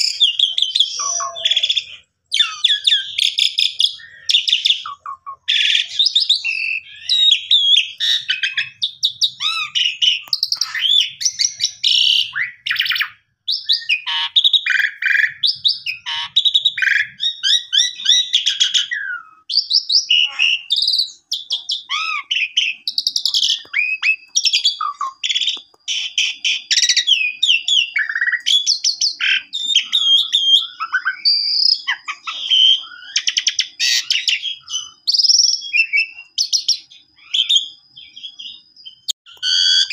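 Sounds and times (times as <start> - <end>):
starling singing: 0.0 - 39.9.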